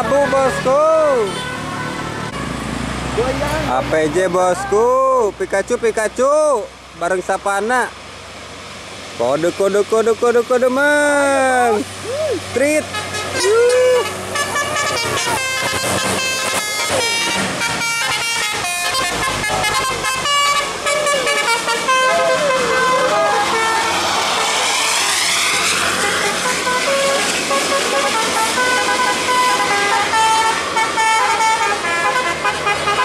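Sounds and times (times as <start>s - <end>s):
coach engine passing: 0.0s - 33.0s
road noise: 0.0s - 33.0s
bus musical horns playing tune: 0.9s - 2.8s, 12.8s - 24.4s, 25.7s - 33.0s.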